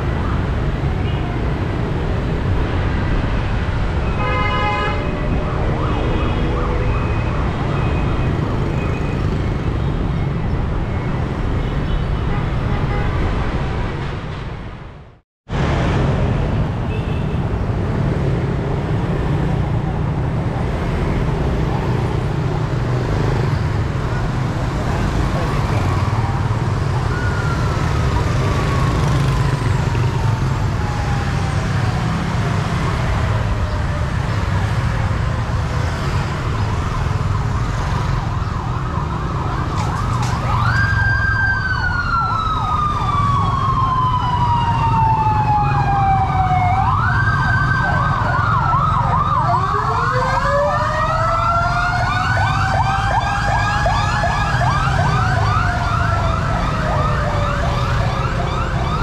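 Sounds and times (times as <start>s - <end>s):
wailing siren: 0.0s - 11.5s, 19.1s - 59.0s
motorbike traffic: 0.0s - 14.9s, 15.5s - 59.0s
fast yelping siren: 36.7s - 59.0s.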